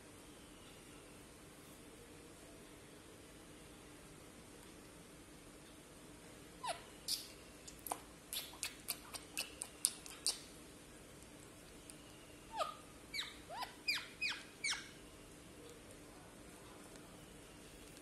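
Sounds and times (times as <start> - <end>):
parakeet chirping: 6.6 - 7.3, 8.3 - 10.5, 12.5 - 15.0.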